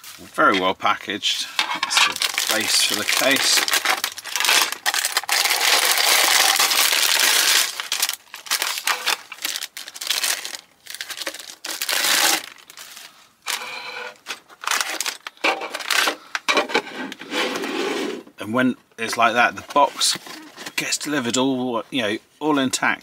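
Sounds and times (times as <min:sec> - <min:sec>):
plastic wrapping crinkling: 0:01.8 - 0:16.2.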